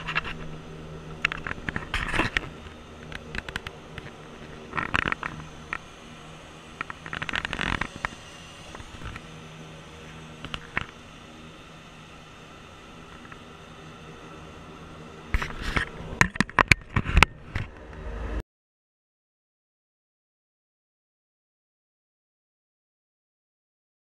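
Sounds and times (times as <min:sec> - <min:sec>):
rustling and clicks: 0:00.0 - 0:05.9
low engine hum: 0:00.0 - 0:18.4.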